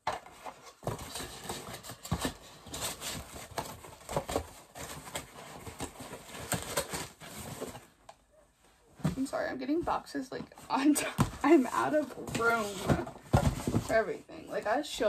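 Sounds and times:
boxes knocking and thumping: 0.0s - 7.8s, 9.0s - 14.0s
packaging rustling: 0.2s - 8.0s.

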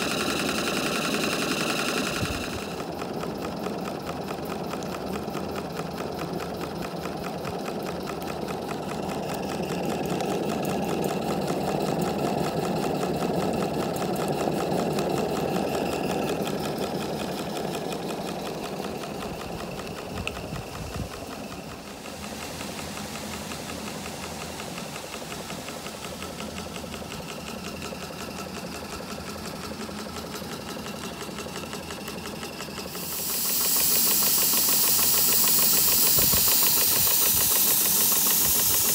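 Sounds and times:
steam engine exhaust chuffing: 0.0s - 38.9s
loud steam hiss: 19.6s - 27.7s, 32.6s - 38.9s.

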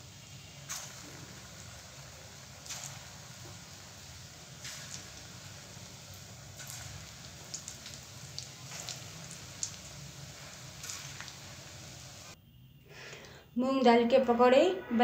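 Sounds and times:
batter sizzling in hot oil: 0.0s - 12.4s
sharp crackles of dropped batter: 0.5s - 12.4s.

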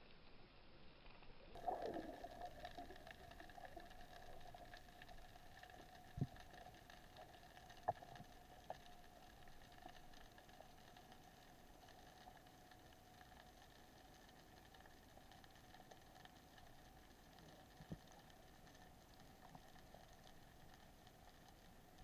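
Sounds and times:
underwater ambience: 0.2s - 22.0s.

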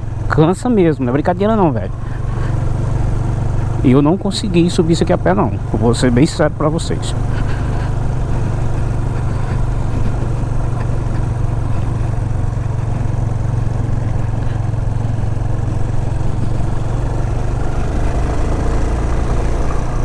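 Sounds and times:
motorcycle engine running: 0.0s - 20.0s
tyres rumbling over cobblestones: 1.0s - 20.0s.

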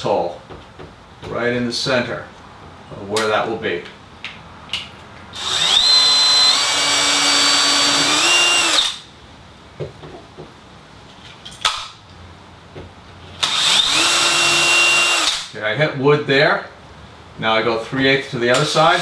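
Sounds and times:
cordless drill whining: 5.4s - 9.0s, 13.4s - 15.5s.

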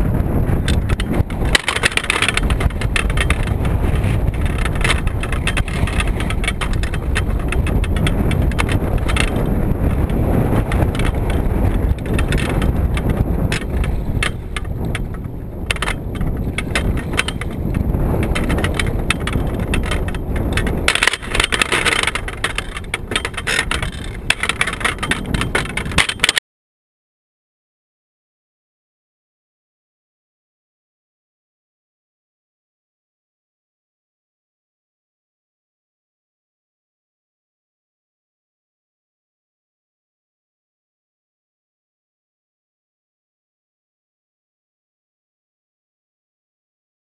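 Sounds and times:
wind buffeting microphone: 0.0s - 26.4s.

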